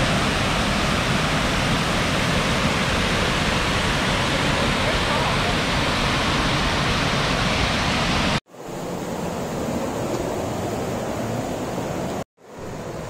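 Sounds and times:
waterfall roaring: 0:00.0 - 0:08.4.

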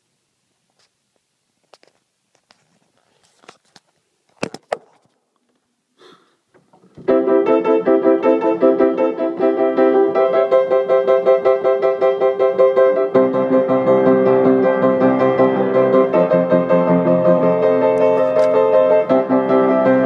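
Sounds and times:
fast piano playing: 0:07.0 - 0:20.0.

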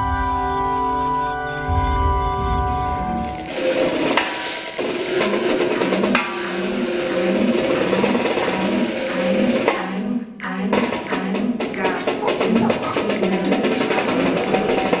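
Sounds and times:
live electronic music: 0:00.0 - 0:15.0
snare drum played with sticks: 0:03.3 - 0:09.9, 0:10.7 - 0:15.0.

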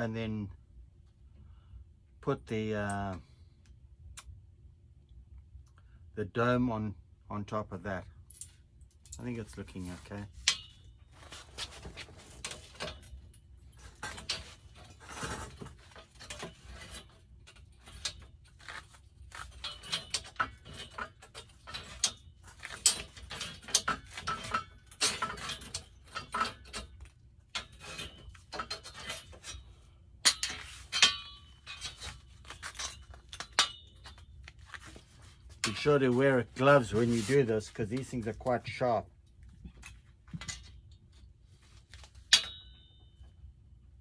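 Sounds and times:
steel strip clinking and rattling: 0:08.3 - 0:43.4.

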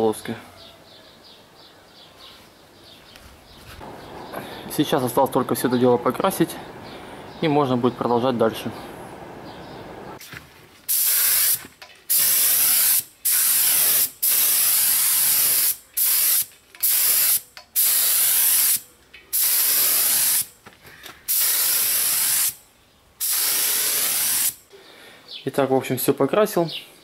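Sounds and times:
paint spray gun hissing: 0:10.9 - 0:20.5, 0:21.3 - 0:22.6, 0:23.2 - 0:24.6.

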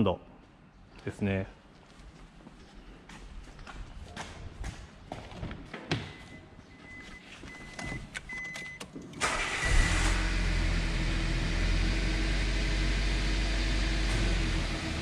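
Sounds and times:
car engine starting and idling: 0:07.5 - 0:15.0.

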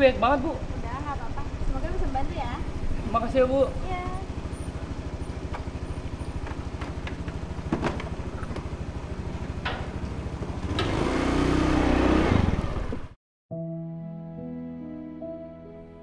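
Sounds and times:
scooter engine idling: 0:00.0 - 0:11.8.

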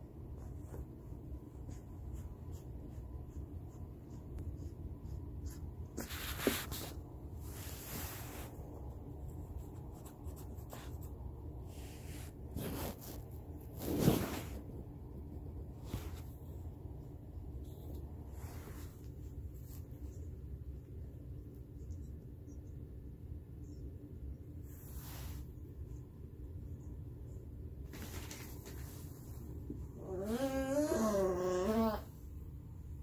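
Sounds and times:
hand rustling on fur: 0:00.0 - 0:20.6, 0:24.6 - 0:25.8
steady low hum: 0:00.0 - 0:33.0.

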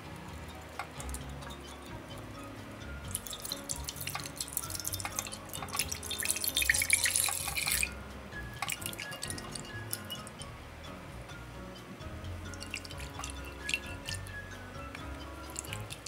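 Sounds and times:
soft background music: 0:00.0 - 0:16.0
spatula stirring with clicks: 0:00.5 - 0:02.3, 0:03.1 - 0:07.9, 0:08.6 - 0:10.4, 0:12.5 - 0:16.0
milk splashing and crackling: 0:03.1 - 0:07.9, 0:08.6 - 0:10.3, 0:12.5 - 0:14.3, 0:15.5 - 0:16.0.

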